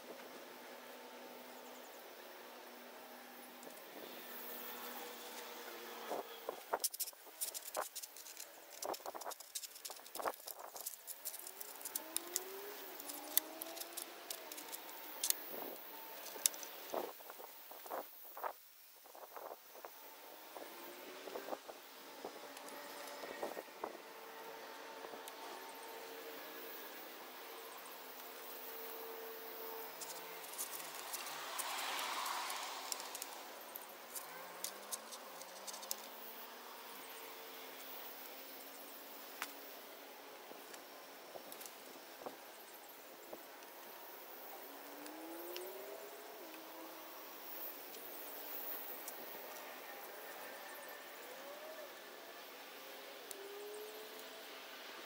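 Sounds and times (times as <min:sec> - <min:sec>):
sharp metal clicks: 0:06.8 - 0:17.0.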